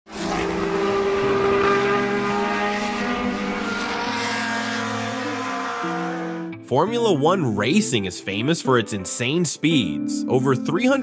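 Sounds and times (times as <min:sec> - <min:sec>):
racing car engines at high revs: 0:00.1 - 0:06.5.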